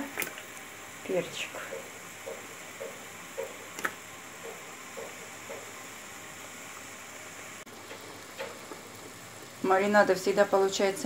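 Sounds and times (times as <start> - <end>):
marinade boiling with hiss and pops: 0.0 - 11.0.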